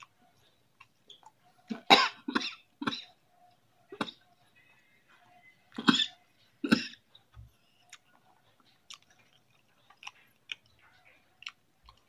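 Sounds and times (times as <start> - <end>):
mouth clicks and chewing: 0.0 - 1.8, 7.1 - 12.0.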